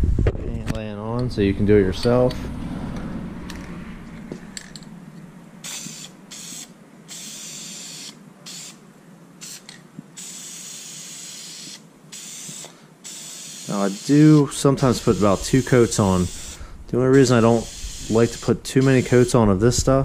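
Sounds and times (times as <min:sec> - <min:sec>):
aerosol spray can hissing: 0:05.6 - 0:08.8, 0:09.4 - 0:16.6, 0:17.3 - 0:19.4.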